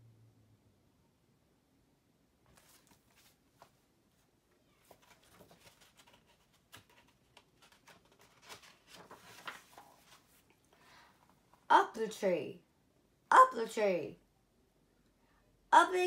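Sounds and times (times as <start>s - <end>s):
book pages rustling and turning: 2.5s - 11.6s.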